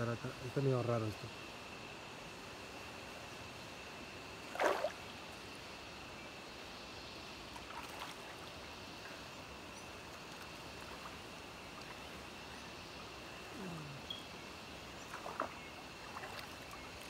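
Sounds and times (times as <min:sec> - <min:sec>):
swimming pool water noise: 0:01.5 - 0:17.0
small water splashes: 0:04.4 - 0:05.4, 0:07.5 - 0:08.7, 0:10.0 - 0:12.4, 0:14.9 - 0:17.0
thin steady high tone: 0:13.5 - 0:14.6.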